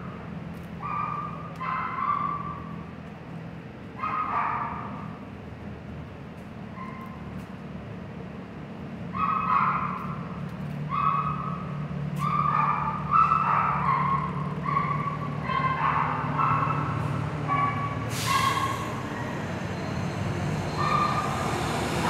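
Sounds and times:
idling bus engines hum: 0.0s - 22.0s
dog yipping and whining: 12.2s - 16.9s, 20.7s - 21.3s.

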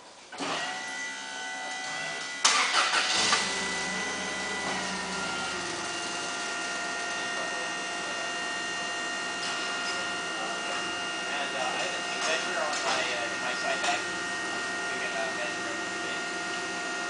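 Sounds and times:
forklift engine running: 2.4s - 17.0s
steady high whine: 3.1s - 17.0s.

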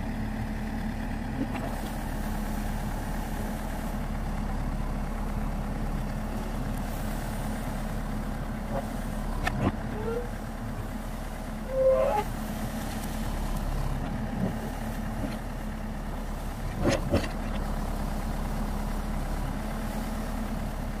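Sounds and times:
diesel engine running: 0.0s - 21.0s
short squeal: 9.9s - 10.4s, 11.6s - 12.4s.

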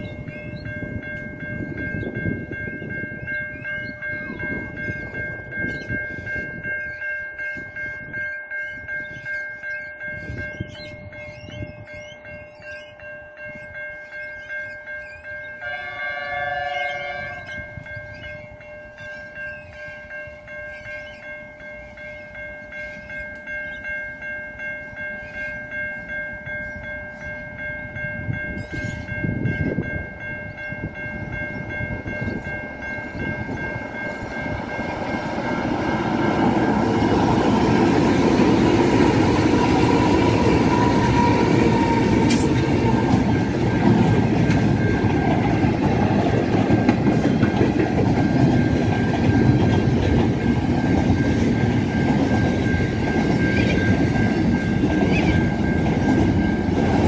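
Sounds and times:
wind buffeting microphone: 0.0s - 12.8s, 16.9s - 19.8s, 25.2s - 57.0s
level-crossing bell ringing: 0.0s - 57.0s
distant locomotive horn: 15.5s - 17.8s, 36.4s - 43.6s.

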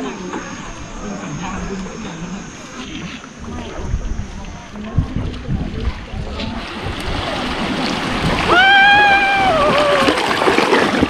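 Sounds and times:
water rushing and splashing: 2.6s - 11.0s
person shouting: 8.5s - 10.2s.

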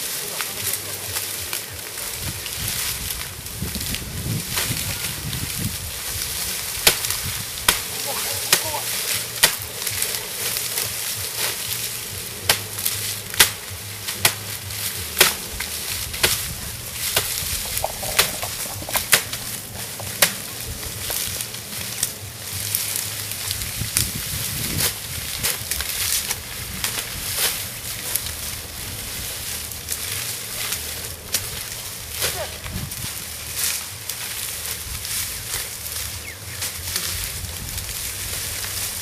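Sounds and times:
steady hiss: 0.0s - 39.0s
sharp cracks and knocks: 2.4s - 28.7s.

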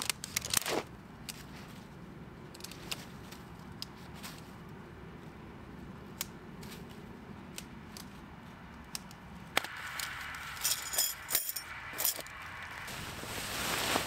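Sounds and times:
tent poles clicking together: 0.0s - 1.5s, 2.4s - 4.5s, 6.1s - 12.8s
metallic rattling and clinking: 10.6s - 12.3s
tent fabric rustling: 12.8s - 14.0s.

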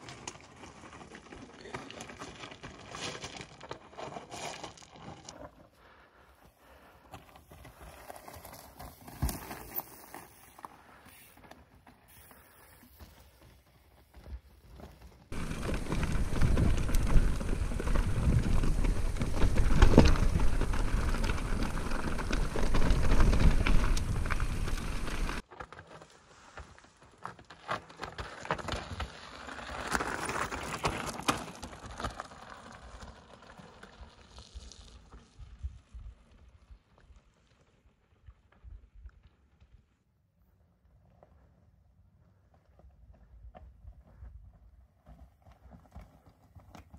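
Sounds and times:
bike tyres crunching over stones: 0.0s - 5.8s, 6.6s - 39.8s
bike rattling and clicking: 14.1s - 25.4s.

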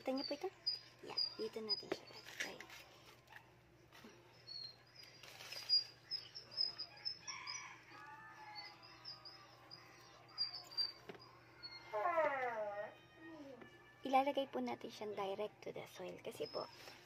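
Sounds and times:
small birds chirping: 0.0s - 2.6s, 4.0s - 12.0s, 16.0s - 17.0s.

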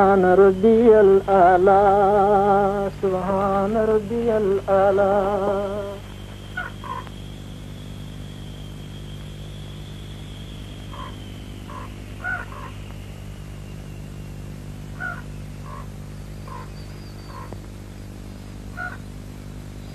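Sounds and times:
faint high whine: 0.0s - 19.9s
steady low hum: 0.0s - 19.9s
birds giving short calls: 6.0s - 14.3s, 14.9s - 19.1s.

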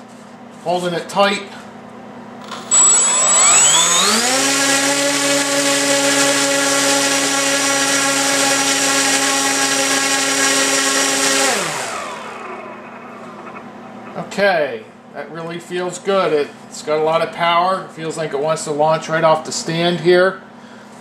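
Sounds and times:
electric motor and propeller whine: 2.4s - 14.1s.

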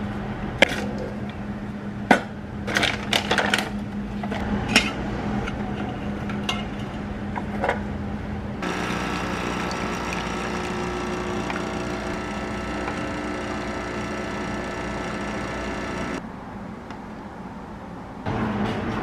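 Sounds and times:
espresso machine pump running: 8.6s - 16.2s.

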